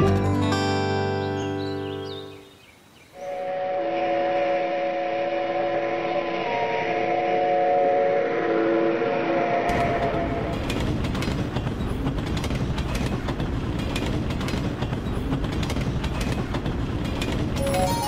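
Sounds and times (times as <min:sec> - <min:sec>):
train horn: 0:03.2 - 0:10.5
train rumbling on rails: 0:03.5 - 0:18.0.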